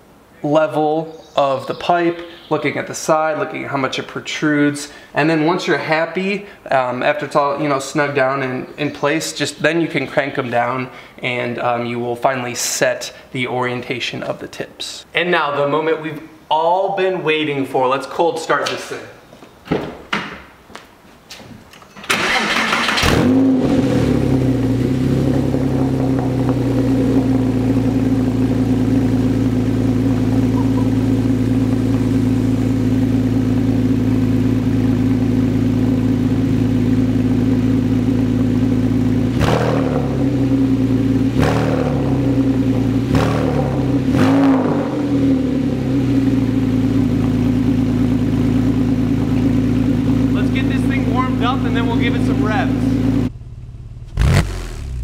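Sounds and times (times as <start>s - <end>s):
car engine cranking and idling: 22.0s - 55.0s
engine throttle blips: 22.1s - 55.0s.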